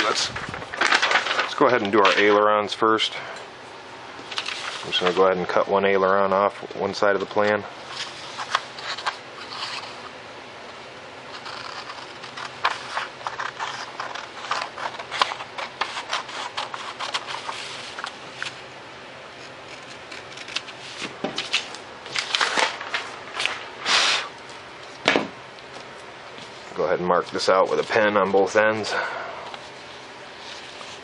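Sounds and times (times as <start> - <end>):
paper rustling: 0.0 - 2.4, 4.2 - 5.3, 7.9 - 10.1, 11.3 - 18.6, 19.4 - 24.2, 29.5 - 31.0
scissors snipping paper: 11.3 - 18.1, 19.7 - 21.1.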